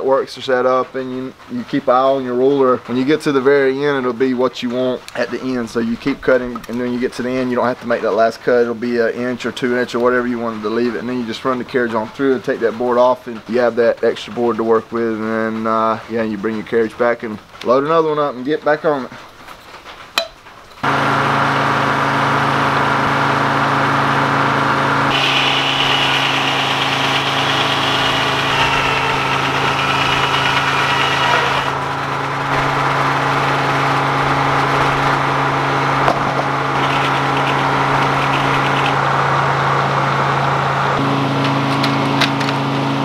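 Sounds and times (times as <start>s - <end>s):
high saw whine: 20.8s - 43.0s
sawmill humming: 20.8s - 43.0s.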